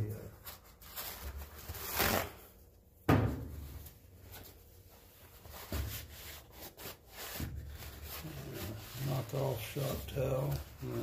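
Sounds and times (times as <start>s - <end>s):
paper towel rubbing: 4.2s - 11.0s.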